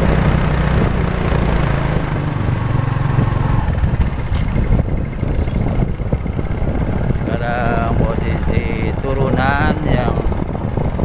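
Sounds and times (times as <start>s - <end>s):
motorcycle engine running: 0.0s - 11.0s
wind rushing over microphone: 0.0s - 11.0s.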